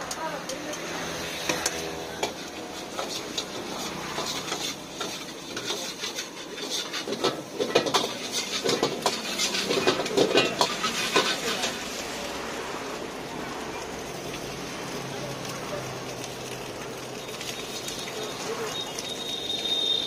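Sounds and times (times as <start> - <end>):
ladle scraping and clanking on wok: 0.0 - 12.5.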